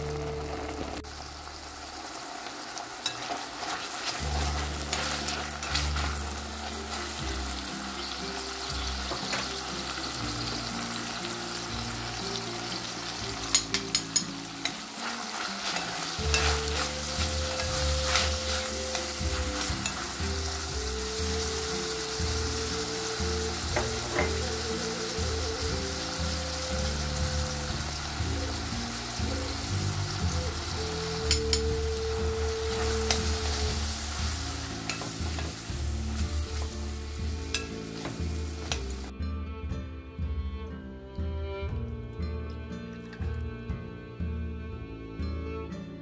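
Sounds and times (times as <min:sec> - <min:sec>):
mushrooms sizzling in oil: 0:00.0 - 0:39.1
metal utensil scraping glass: 0:03.0 - 0:07.2, 0:13.5 - 0:20.6, 0:31.3 - 0:39.1.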